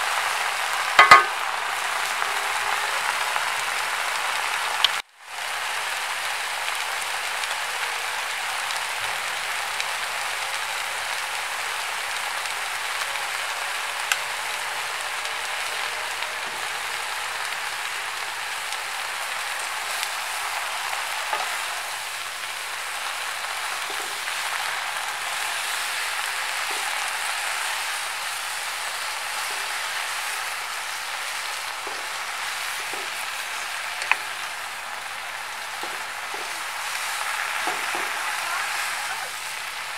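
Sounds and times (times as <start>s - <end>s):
vegetables sizzling in a wok: 0.0s - 39.9s
wooden spatulas clicking on pan: 1.0s - 1.4s.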